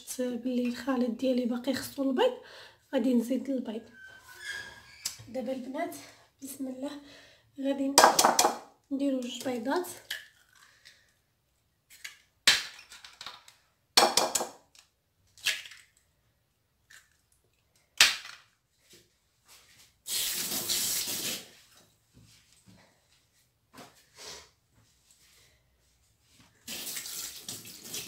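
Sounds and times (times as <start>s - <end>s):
egg shell cracking: 10.0s - 11.0s.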